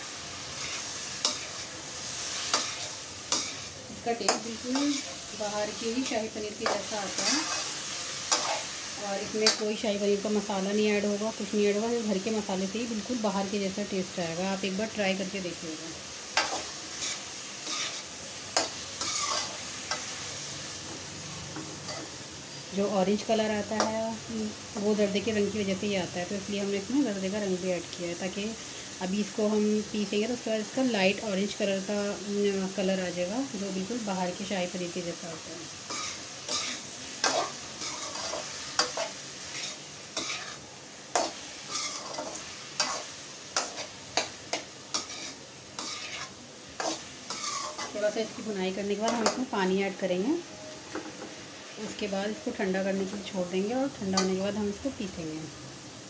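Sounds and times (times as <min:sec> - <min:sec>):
food sizzling in oil: 0:00.0 - 0:56.0
metal spoon scraping pan: 0:00.5 - 0:01.7, 0:02.3 - 0:08.8, 0:16.4 - 0:20.1, 0:35.9 - 0:48.0.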